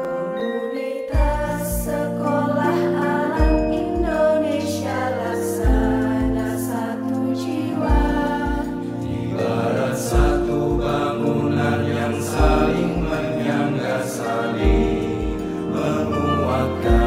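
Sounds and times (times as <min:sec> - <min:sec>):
instrumental backing: 0:00.0 - 0:17.0
voices singing a hymn together: 0:00.0 - 0:17.0
deep beat: 0:05.6 - 0:06.6, 0:07.9 - 0:08.8, 0:10.1 - 0:11.5, 0:12.3 - 0:13.6, 0:14.6 - 0:17.0.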